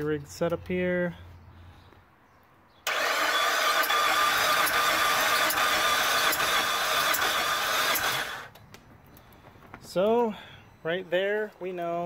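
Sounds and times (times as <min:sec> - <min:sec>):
engine starter cranking: 0:02.9 - 0:08.6.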